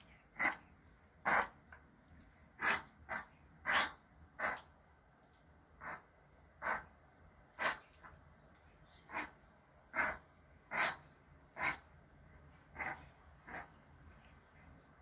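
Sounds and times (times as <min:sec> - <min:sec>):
puppy snorting: 0:00.4 - 0:00.6, 0:01.2 - 0:01.6, 0:02.6 - 0:04.7, 0:05.8 - 0:06.9, 0:07.6 - 0:07.9, 0:09.1 - 0:11.9, 0:12.7 - 0:13.8.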